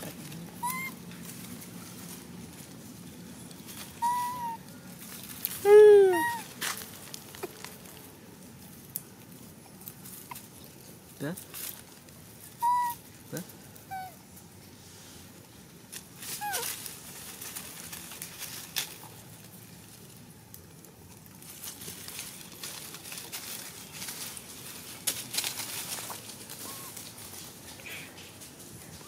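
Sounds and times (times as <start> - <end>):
dry leaves rustling and crackling: 0.0 - 29.0
monkey chirps: 0.6 - 1.0, 4.0 - 4.6, 5.7 - 6.5, 12.6 - 13.0.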